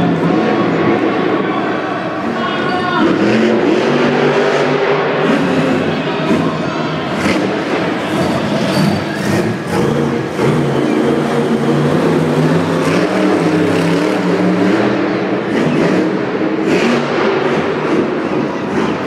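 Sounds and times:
monster truck engine revving: 0.0s - 19.0s.

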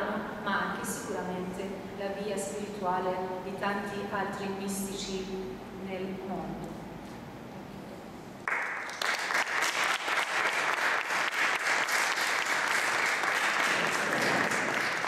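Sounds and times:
audience applauding: 8.4s - 15.0s.

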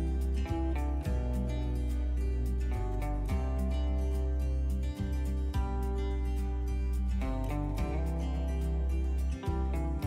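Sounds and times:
bass line: 0.0s - 10.0s
guitar strumming: 0.0s - 10.0s.

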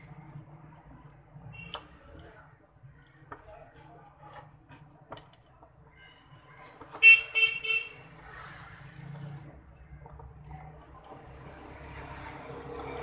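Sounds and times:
wires and plastic parts clicking: 4.7s - 5.8s, 10.1s - 11.2s
vehicle horn honking: 7.0s - 8.0s.

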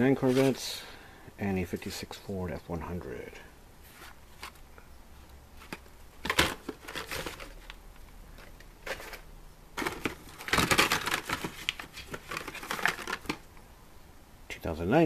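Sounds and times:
plastic blister packs crinkling: 5.6s - 13.5s.

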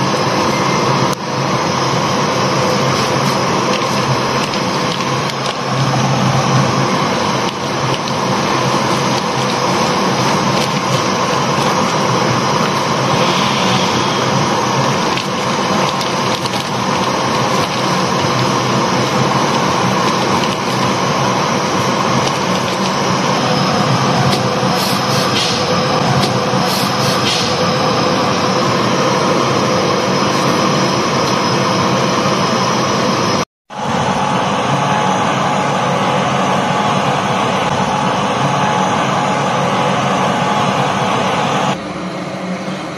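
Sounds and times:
gas hob rushing: 0.0s - 41.8s
water boiling in pots: 0.1s - 32.2s.

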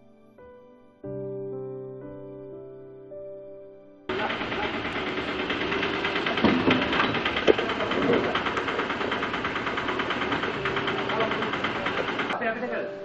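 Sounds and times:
knocks: 4.1s - 12.4s
small engine idling: 4.1s - 12.8s.

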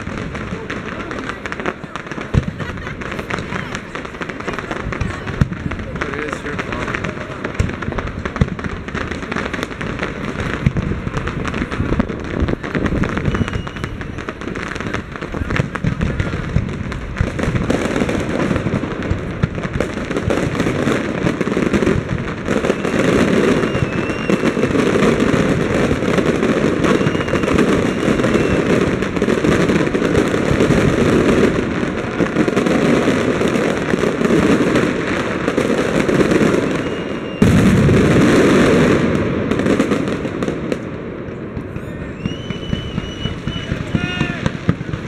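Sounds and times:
fireworks shells bursting: 0.0s - 40.9s, 41.6s - 45.0s
fireworks crackling: 0.0s - 45.0s
faint firework whistles: 11.4s - 16.6s, 22.4s - 31.5s, 36.1s - 38.7s, 41.3s - 45.0s.

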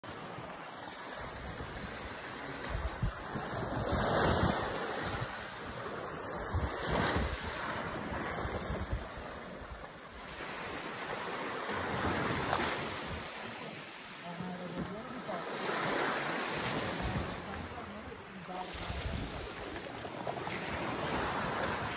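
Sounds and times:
waves washing on sand: 0.0s - 21.9s
wind on microphone: 1.2s - 9.9s, 18.8s - 21.9s.

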